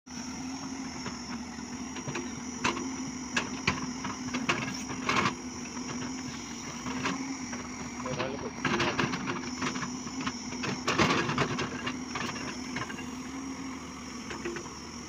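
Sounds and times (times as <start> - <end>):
excavator diesel engine: 0.1 - 15.0.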